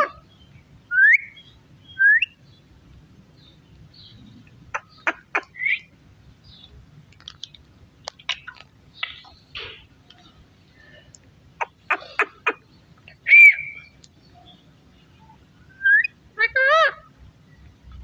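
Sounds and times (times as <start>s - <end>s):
parakeet whistled chirp: 13.3s - 13.9s.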